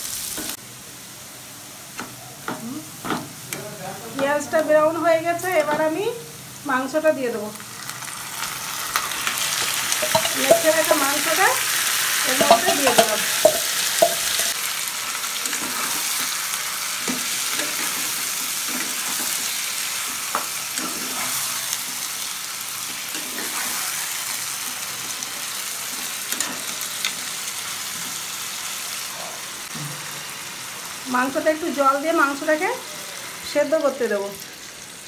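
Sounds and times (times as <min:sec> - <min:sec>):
meat sizzling in hot oil: 0:00.0 - 0:35.0
steel spatula scraping a pan: 0:09.6 - 0:11.4, 0:12.2 - 0:14.6.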